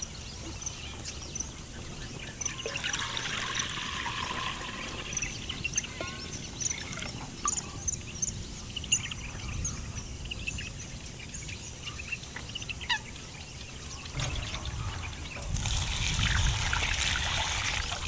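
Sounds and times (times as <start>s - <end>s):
small birds chirping: 0.0s - 18.0s
low background rumble: 14.1s - 18.0s.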